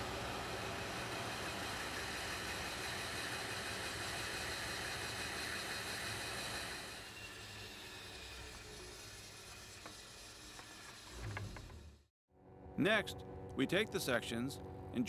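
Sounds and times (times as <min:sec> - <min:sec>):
bandsaw running: 0:00.0 - 0:12.0.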